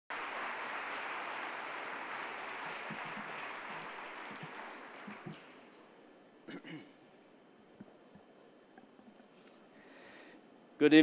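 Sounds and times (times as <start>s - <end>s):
large audience applauding: 0.1s - 5.6s.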